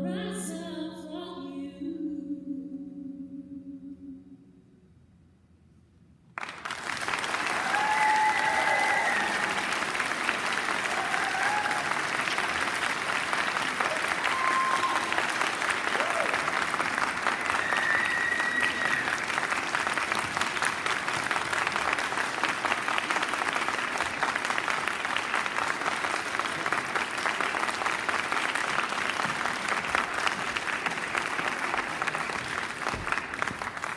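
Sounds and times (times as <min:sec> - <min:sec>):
audience applauding: 0:06.4 - 0:33.9.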